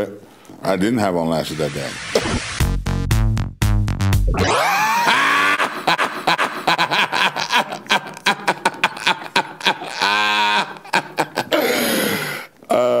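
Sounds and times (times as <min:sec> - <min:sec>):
laughing cry and whoop: 0:04.4 - 0:11.5
loud cackling laughter: 0:04.4 - 0:11.5.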